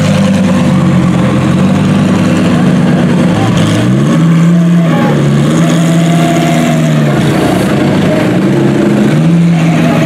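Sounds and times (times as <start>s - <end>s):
race car engine idling: 0.0s - 10.0s.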